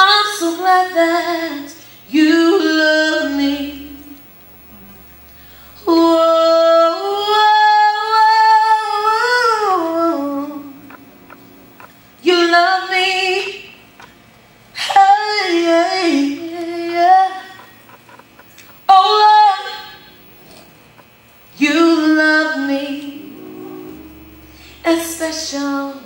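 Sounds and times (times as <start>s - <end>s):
woman singing into a microphone: 0.0s - 4.2s, 5.8s - 10.9s, 12.2s - 13.8s, 14.8s - 17.8s, 18.9s - 20.1s, 21.6s - 23.3s, 24.6s - 26.0s.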